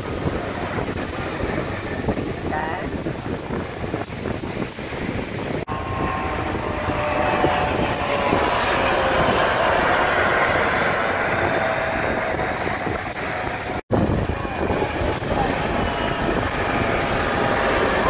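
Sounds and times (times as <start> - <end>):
helicopter flying past: 5.5 - 18.0.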